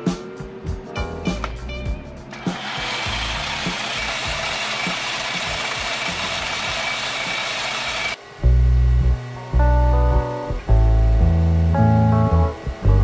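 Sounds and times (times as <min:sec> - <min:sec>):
metal lathe cutting with whine: 0:02.4 - 0:08.2.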